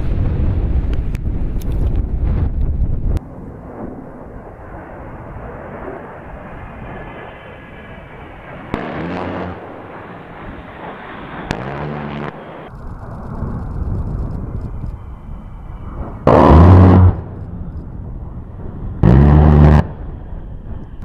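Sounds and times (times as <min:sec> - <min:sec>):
jet engines roaring: 0:00.0 - 0:21.0
gatling gun burst deep buzz: 0:16.3 - 0:17.4, 0:19.0 - 0:20.0.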